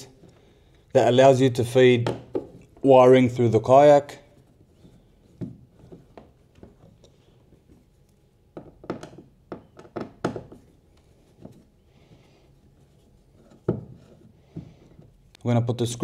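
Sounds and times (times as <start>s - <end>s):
screwdriver clicks and knocks: 8.5s - 10.7s.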